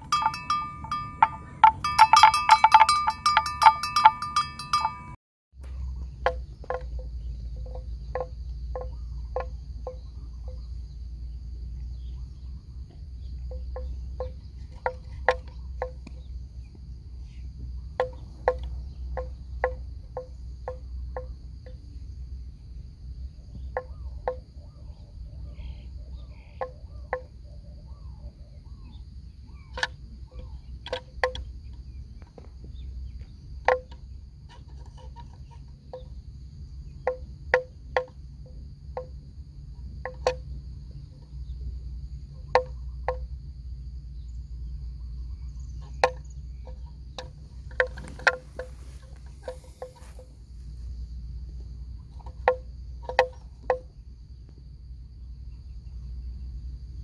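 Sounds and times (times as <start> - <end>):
high-pitched insect drone: 0.0 - 5.2, 33.2 - 57.0.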